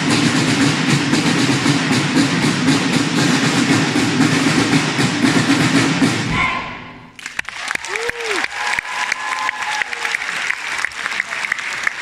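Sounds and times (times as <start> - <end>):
snare drums playing fast: 0.0 - 6.6.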